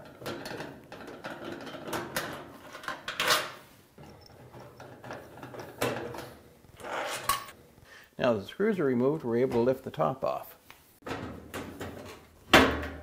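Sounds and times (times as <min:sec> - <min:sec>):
screwdriver scraping and clicking on metal: 0:04.0 - 0:06.2.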